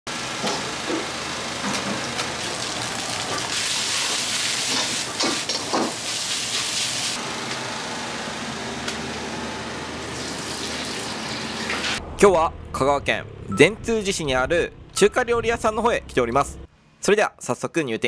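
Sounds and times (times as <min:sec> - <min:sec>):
gas burners roaring: 0:00.1 - 0:06.0, 0:07.0 - 0:16.7
rice sizzling in a wok: 0:00.2 - 0:07.2.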